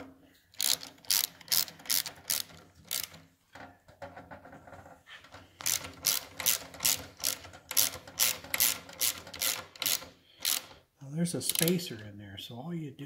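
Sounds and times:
ratchet wrench clicking: 0:00.5 - 0:03.2, 0:05.6 - 0:10.8, 0:11.4 - 0:11.9.

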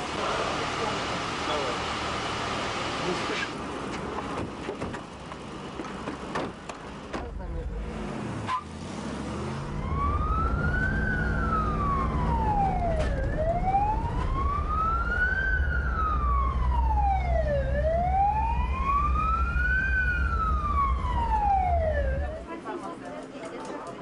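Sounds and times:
road noise: 0:00.0 - 0:24.0
emergency vehicle siren wailing: 0:09.4 - 0:22.5
low engine rumble: 0:09.6 - 0:23.3.

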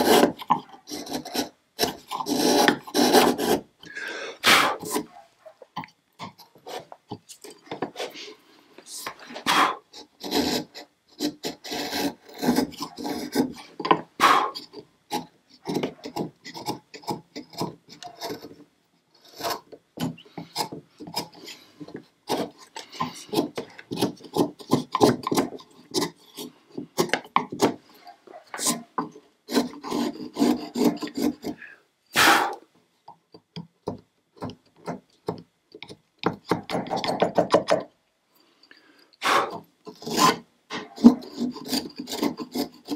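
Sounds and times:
chisel scraping wood: 0:00.0 - 0:03.7, 0:04.4 - 0:05.2, 0:06.2 - 0:08.3, 0:08.9 - 0:32.6, 0:39.2 - 0:42.9.

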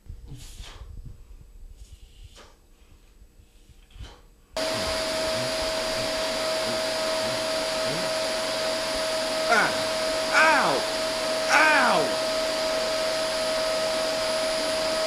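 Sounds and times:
vacuum cleaner running: 0:04.6 - 0:15.0.

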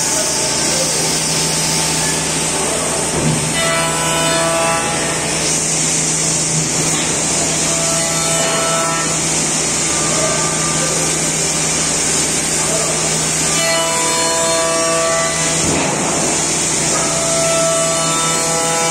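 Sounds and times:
cnc router cutting wood: 0:00.0 - 0:18.9.

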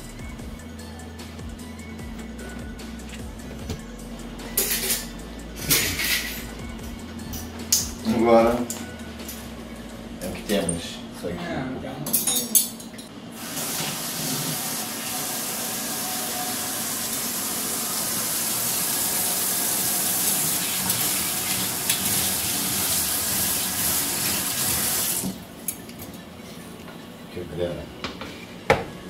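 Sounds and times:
tap water running into sink: 0:13.4 - 0:25.4
utensils being rinsed: 0:13.4 - 0:25.4.

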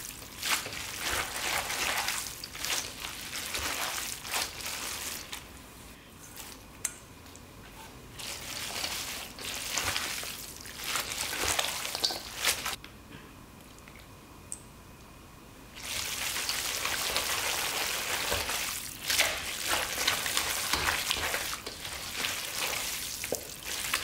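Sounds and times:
wet noodles squelching in bowl: 0:00.0 - 0:05.5, 0:15.8 - 0:24.0.

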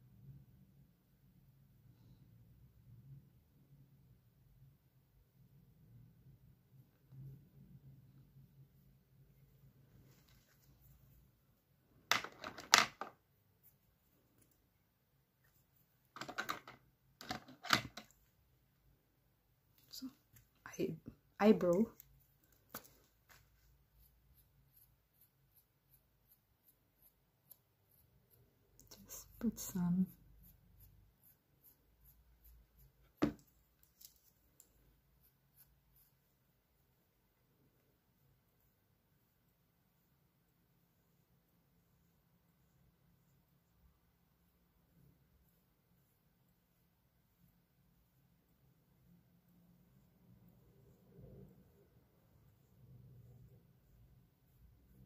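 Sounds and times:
eyebrow brush strokes: 0:06.7 - 0:11.9, 0:13.2 - 0:16.2, 0:18.0 - 0:55.0
makeup items clicking and clattering: 0:12.1 - 0:13.2, 0:16.2 - 0:18.2.

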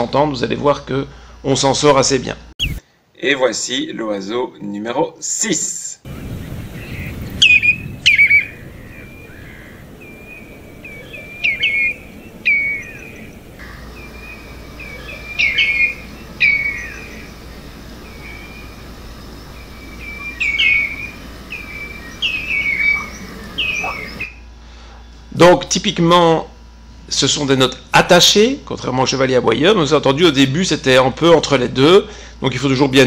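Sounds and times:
redshank whistled flight calls: 0:02.6 - 0:02.8, 0:06.1 - 0:24.5.

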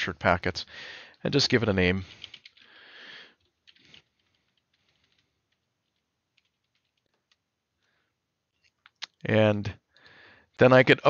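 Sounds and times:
faint keyboard typing: 0:01.0 - 0:09.2.

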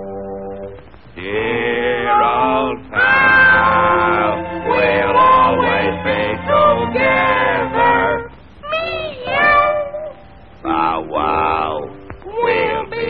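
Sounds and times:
orchestral accompaniment: 0:00.0 - 0:00.8, 0:02.1 - 0:08.3
male cartoon voices singing: 0:01.2 - 0:09.8, 0:10.6 - 0:13.0.

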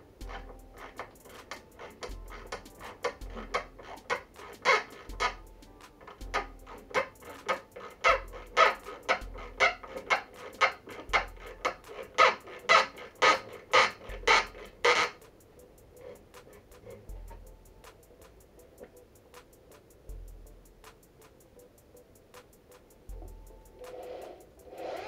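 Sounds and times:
screwdriver squeaking in wood: 0:00.2 - 0:05.4, 0:06.0 - 0:15.2.

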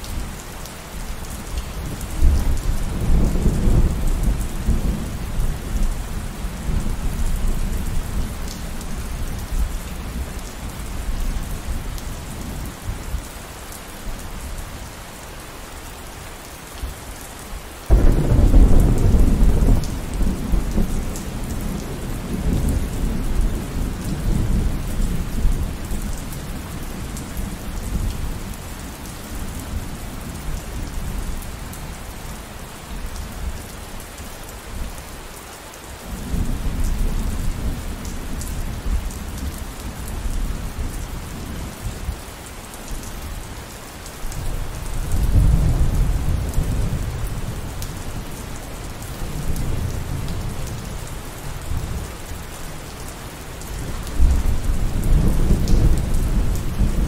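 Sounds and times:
steady rainfall: 0:00.0 - 0:57.0
thunder rumbling: 0:17.9 - 0:25.8.

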